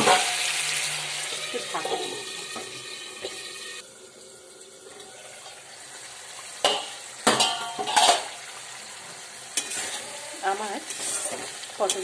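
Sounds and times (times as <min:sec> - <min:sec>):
gravy bubbling and sizzling in pan: 0:00.0 - 0:12.0
metal spoon clattering on pan: 0:06.6 - 0:08.3, 0:10.8 - 0:12.0.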